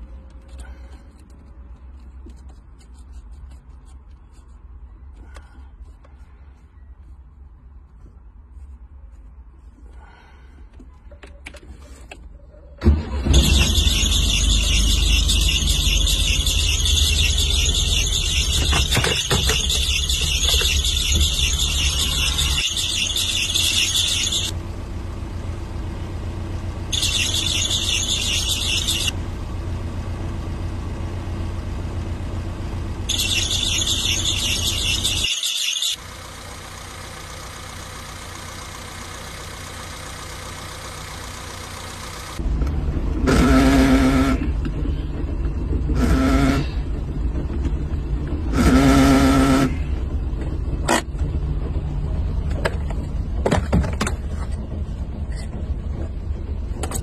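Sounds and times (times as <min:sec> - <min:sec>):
car engine running: 0:12.8 - 0:57.0
high-pitched squeal: 0:12.9 - 0:24.6, 0:26.9 - 0:29.2, 0:33.1 - 0:36.0.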